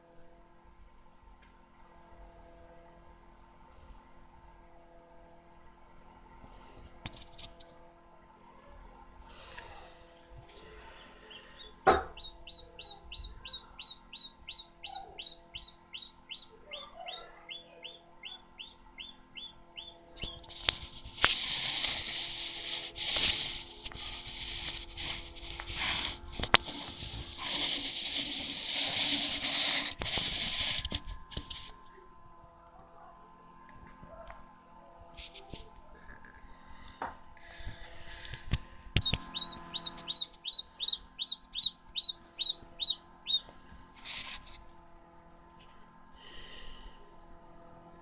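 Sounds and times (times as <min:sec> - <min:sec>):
chick peeping: 0:10.5 - 0:23.3, 0:39.0 - 0:44.3
rustling hiss: 0:20.2 - 0:31.8.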